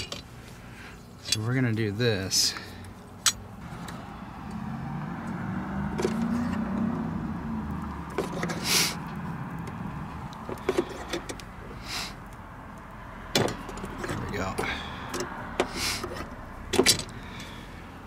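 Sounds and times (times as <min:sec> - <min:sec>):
metal clicks creaks and knocks: 0:13.3 - 0:17.2.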